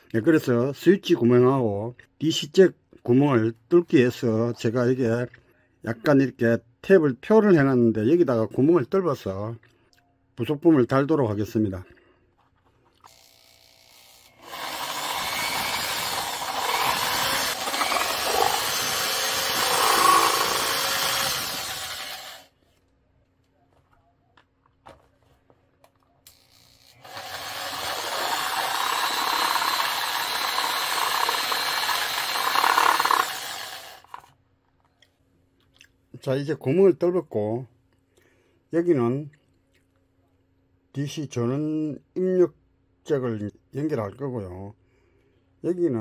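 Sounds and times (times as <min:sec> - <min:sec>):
power drill boring through plastic: 0:13.1 - 0:22.5, 0:26.3 - 0:34.3.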